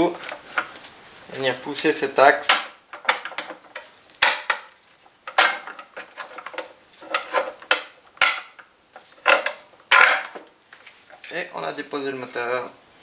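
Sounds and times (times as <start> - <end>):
metallic clicks and knocks: 2.4 - 4.7, 5.3 - 10.5.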